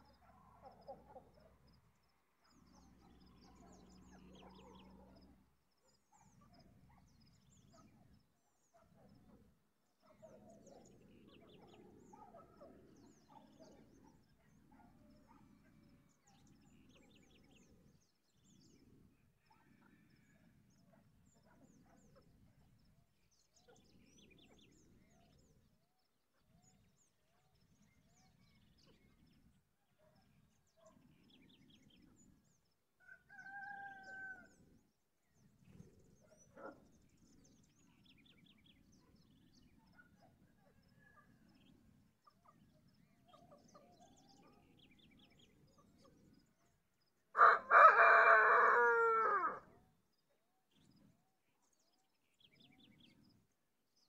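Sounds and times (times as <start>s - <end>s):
rooster crowing: 47.4s - 49.6s.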